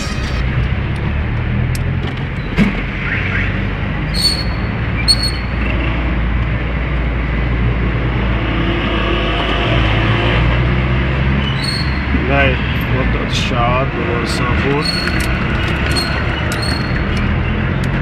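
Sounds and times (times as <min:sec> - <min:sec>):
car engine and tyres rumble: 0:00.0 - 0:18.0
short high-pitched squeaks: 0:11.5 - 0:12.1, 0:14.8 - 0:17.3.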